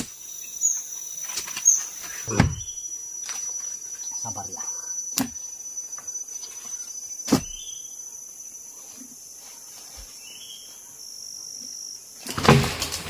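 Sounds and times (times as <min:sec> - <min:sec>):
high-pitched insect drone: 0:00.0 - 0:08.6.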